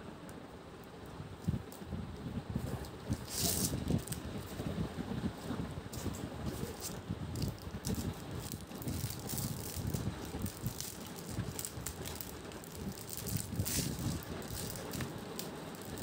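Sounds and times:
plastic wrap crinkling: 2.8s - 4.6s, 6.0s - 16.0s.

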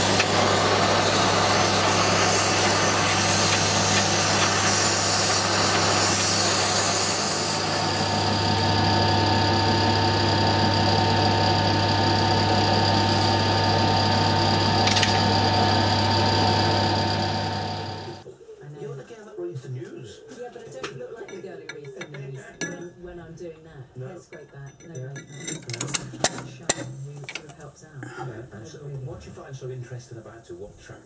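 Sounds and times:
gas torch flame hissing: 0.0s - 18.2s
lathe running hum: 0.0s - 18.2s.

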